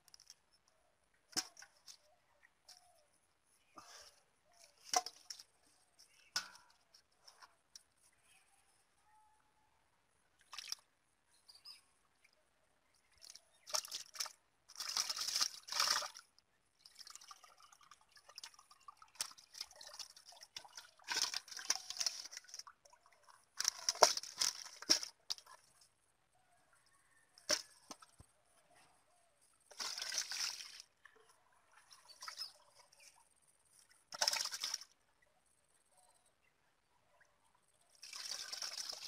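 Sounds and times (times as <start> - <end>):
water splashing and pouring: 10.4 - 10.9, 13.1 - 25.8, 29.7 - 33.2, 33.8 - 35.0, 37.9 - 39.0.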